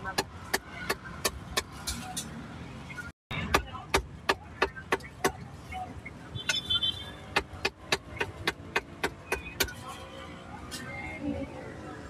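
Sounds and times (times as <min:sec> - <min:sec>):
cleaver chopping meat: 0:03.4 - 0:05.4, 0:07.3 - 0:09.8.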